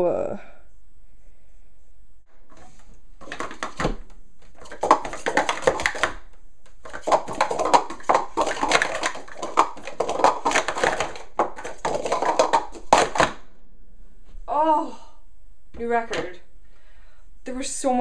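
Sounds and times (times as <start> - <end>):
plastic cups clattering: 2.5 - 13.5.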